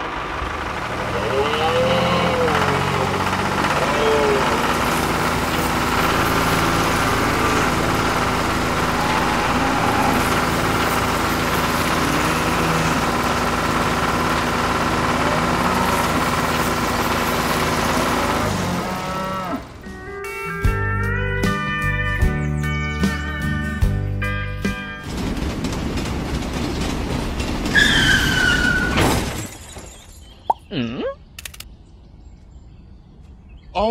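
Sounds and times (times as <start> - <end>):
engine running steadily: 0.0 - 22.3.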